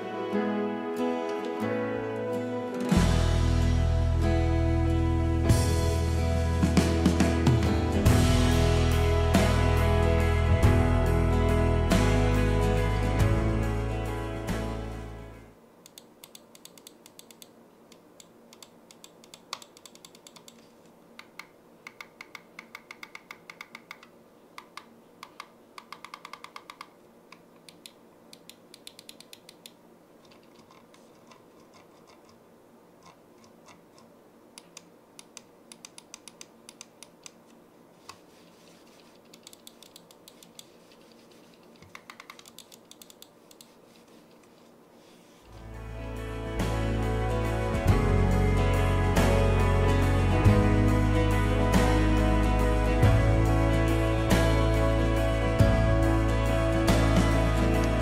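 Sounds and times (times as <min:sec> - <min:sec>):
mouse buttons clicking: 0:15.9 - 0:20.6, 0:21.2 - 0:32.4, 0:33.0 - 0:37.4, 0:39.3 - 0:40.7, 0:41.8 - 0:43.8.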